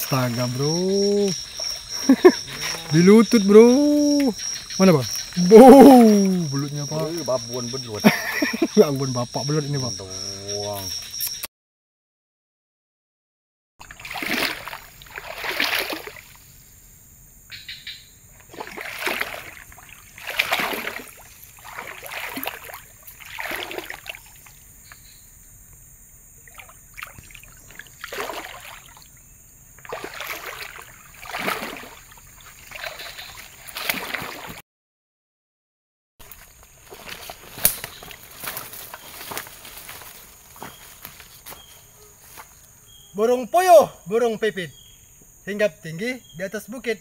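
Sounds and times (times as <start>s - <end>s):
footsteps wading through water: 0.0s - 9.1s, 13.8s - 16.4s, 18.4s - 24.6s, 26.4s - 29.2s, 29.8s - 34.6s, 36.2s - 42.6s.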